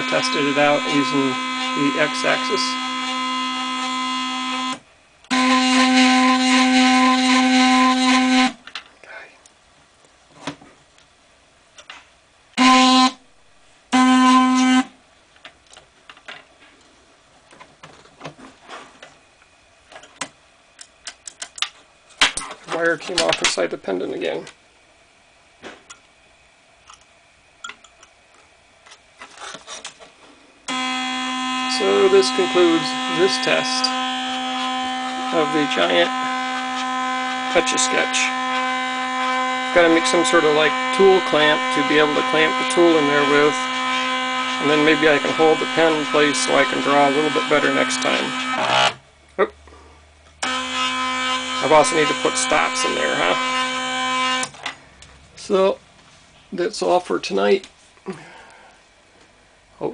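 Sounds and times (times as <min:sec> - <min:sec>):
stepper motors whining: 0:00.0 - 0:08.5, 0:30.7 - 0:49.0, 0:50.4 - 0:54.6.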